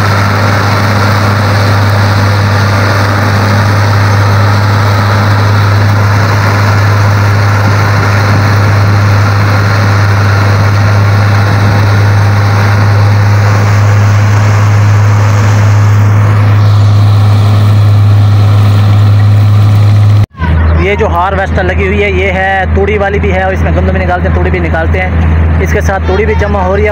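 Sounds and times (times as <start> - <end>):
threshing noise: 0.0 - 20.3
combine harvester droning: 0.0 - 26.9.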